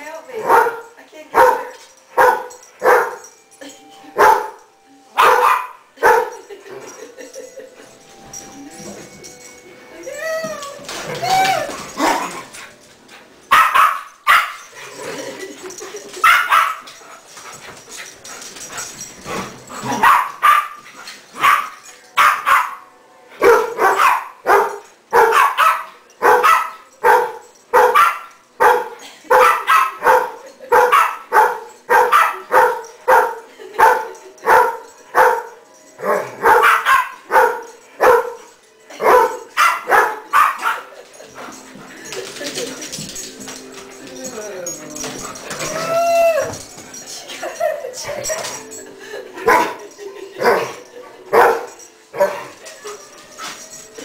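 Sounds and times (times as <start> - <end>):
dog barking: 0.4 - 3.2, 4.2 - 4.6, 5.2 - 6.4, 13.5 - 14.6, 16.2 - 16.8, 19.9 - 20.8, 21.4 - 22.8, 23.4 - 38.4, 39.0 - 40.9, 50.4 - 52.5.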